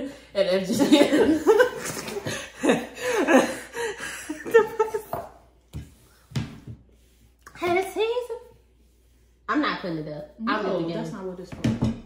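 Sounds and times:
people laughing: 0.6 - 5.3.

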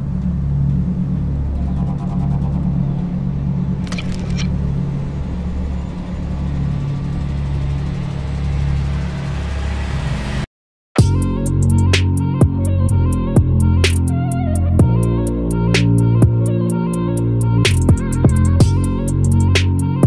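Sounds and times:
steady low rumble: 0.0 - 9.4, 11.0 - 19.6
short rattle: 3.8 - 4.6.

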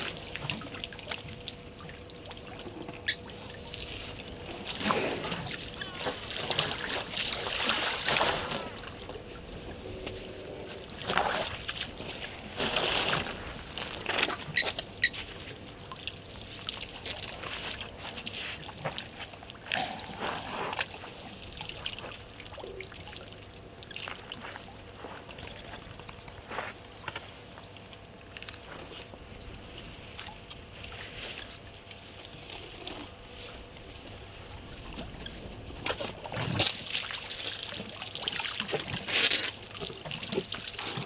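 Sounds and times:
elephants splashing water: 2.6 - 9.6, 10.3 - 14.2.

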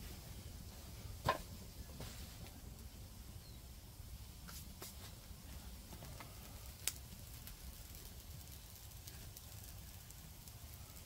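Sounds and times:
campfire crackling: 0.0 - 11.0
fire pops: 1.1 - 3.2, 4.3 - 11.0.

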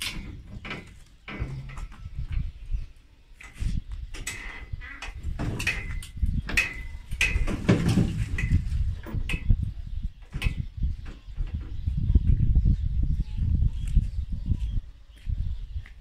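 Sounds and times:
metal rotisserie creaking and squeaking: 0.0 - 2.8, 3.4 - 9.7.

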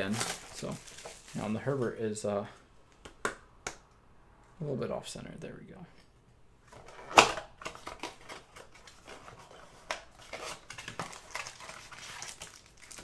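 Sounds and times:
cards rustling: 0.0 - 2.0, 7.6 - 13.0.

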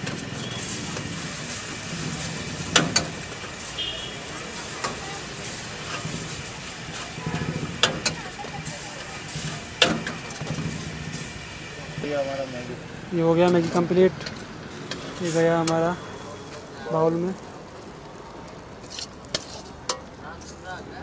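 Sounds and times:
noodles sizzling in a wok: 0.0 - 21.0
ladle stirring noodles: 17.4 - 20.6.

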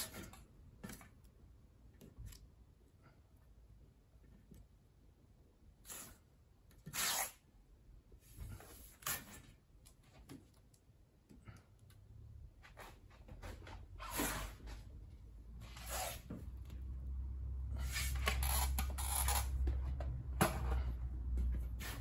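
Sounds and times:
masking tape ripping and rubbing: 5.8 - 6.2, 6.8 - 7.5, 15.6 - 16.4, 17.8 - 19.6.

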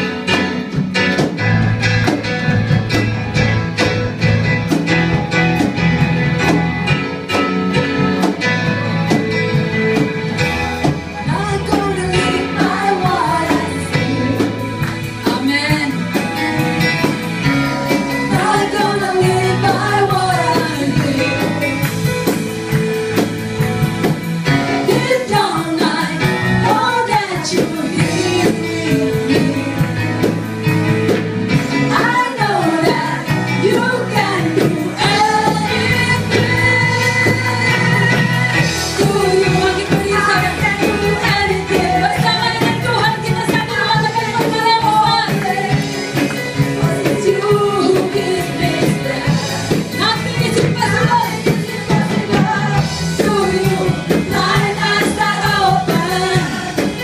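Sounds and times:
live worship band playing: 0.0 - 57.0
people singing: 11.2 - 23.4, 24.0 - 30.5, 31.1 - 57.0.

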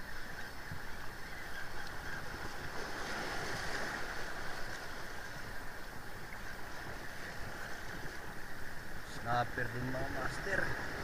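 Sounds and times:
waves washing over rocks: 2.2 - 8.2.

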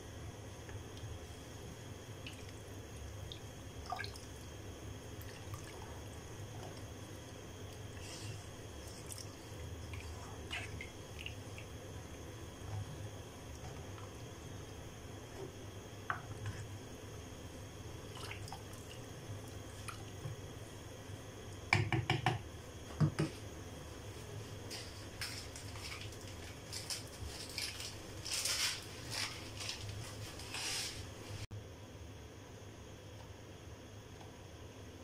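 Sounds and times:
pot simmering and bubbling: 0.0 - 22.6
wooden spoon knocking on pot: 21.7 - 22.4.

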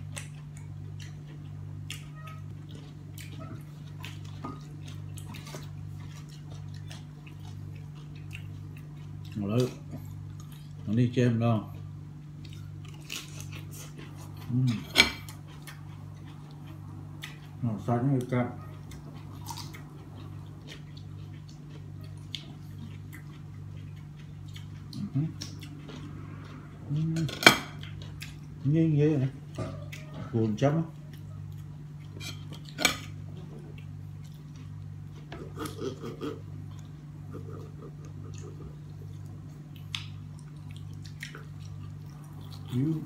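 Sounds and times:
steady low hum: 0.0 - 43.0
knife carving crackly meat: 12.6 - 16.3.

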